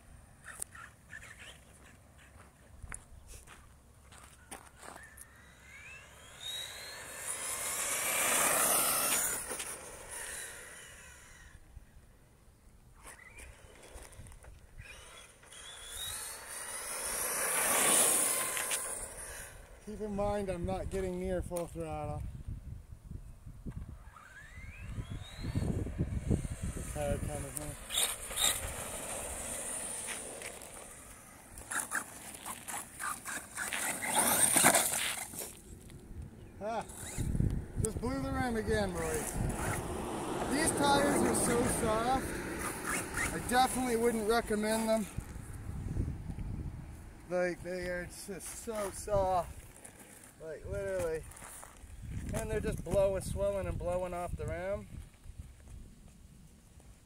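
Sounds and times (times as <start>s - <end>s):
rc truck tumbling: 0.4s - 2.4s, 4.1s - 11.7s, 12.9s - 20.2s, 23.7s - 46.2s
tyre noise on asphalt: 0.4s - 11.6s, 13.0s - 22.1s, 23.6s - 57.0s
electric motor whining: 5.0s - 11.7s, 13.1s - 19.9s, 23.7s - 35.6s, 36.8s - 45.3s.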